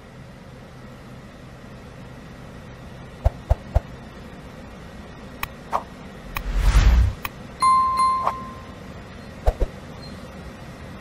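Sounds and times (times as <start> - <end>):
low background hum: 0.0 - 11.0
loud whoosh: 6.2 - 7.3.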